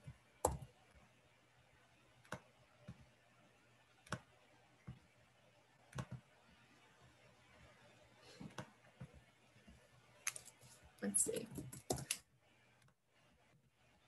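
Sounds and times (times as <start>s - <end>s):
computer mouse clicks: 2.2s - 3.0s, 4.0s - 4.3s, 5.9s - 6.2s.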